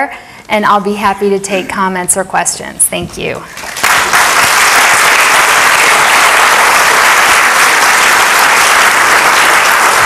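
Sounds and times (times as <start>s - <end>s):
audience applauding: 3.6s - 10.0s.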